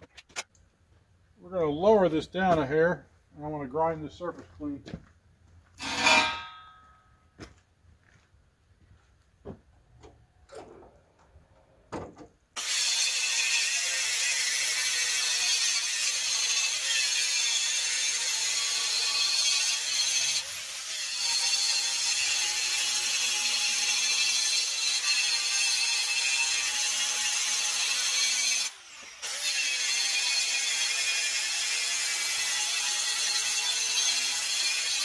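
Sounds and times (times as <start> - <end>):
angle grinder grinding steel: 5.8 - 6.8, 12.6 - 35.0.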